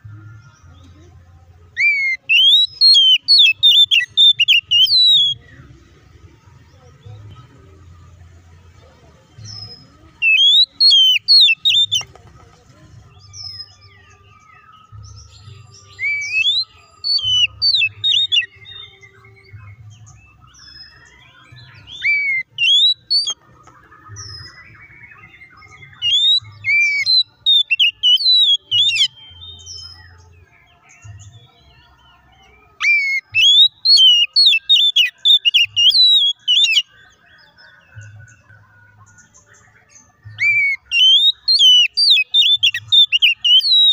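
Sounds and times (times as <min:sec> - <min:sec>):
bird singing whistled phrases: 0:01.8 - 0:05.4, 0:09.5 - 0:12.1, 0:14.8 - 0:23.4, 0:24.1 - 0:30.2, 0:32.4 - 0:37.0, 0:40.3 - 0:43.9.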